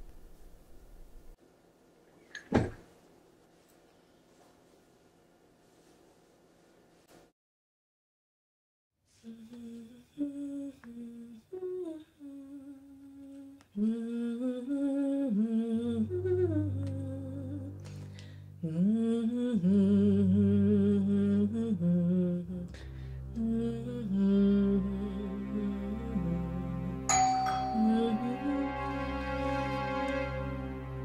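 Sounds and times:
woman humming melody: 9.2 - 18.0, 18.6 - 29.3.

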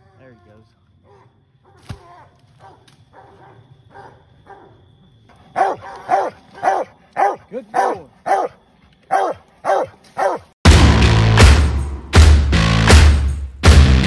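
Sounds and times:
dog barking: 1.0 - 1.8, 2.6 - 4.8, 5.5 - 10.5.

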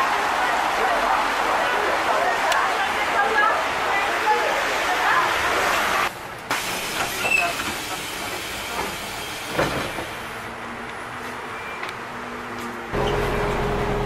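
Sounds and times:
street noise: 0.0 - 14.0
bus running rumble with hiss: 3.7 - 14.0.

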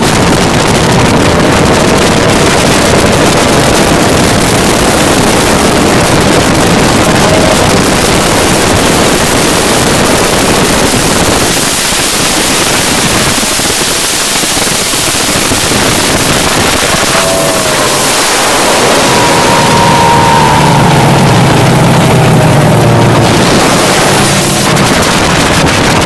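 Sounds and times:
high engine tone: 0.0 - 12.7, 13.3 - 26.0
rush of wind and water: 0.0 - 26.0
wind buffeting microphone: 0.0 - 26.0.

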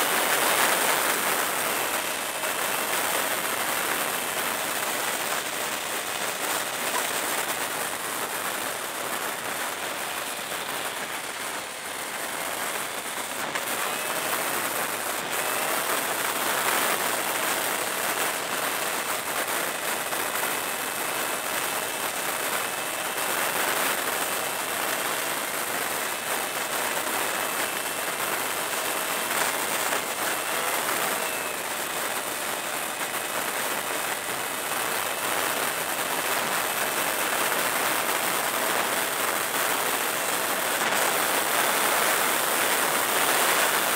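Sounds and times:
motorcycle engine whine: 0.0 - 22.8.

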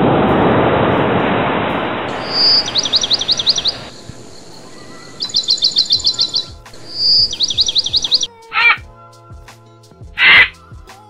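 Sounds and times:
songbird singing: 2.0 - 8.8, 10.2 - 10.6.

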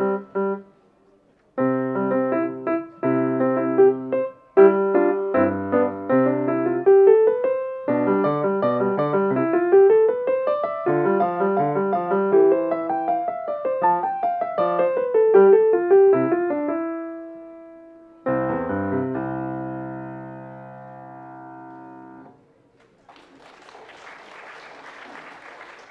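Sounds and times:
grand piano playing: 0.0 - 0.7, 1.6 - 22.4
audience applause: 22.7 - 25.9.

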